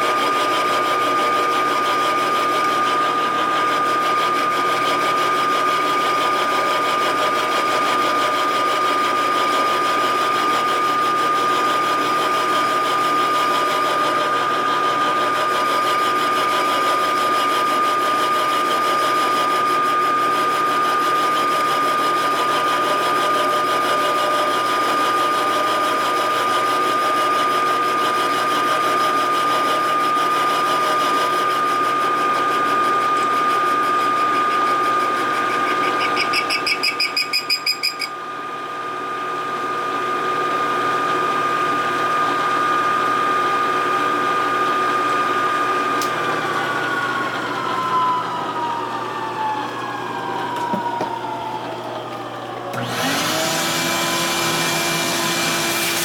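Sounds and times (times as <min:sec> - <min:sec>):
milling machine cutting metal: 0:00.0 - 0:38.2, 0:50.2 - 0:56.0.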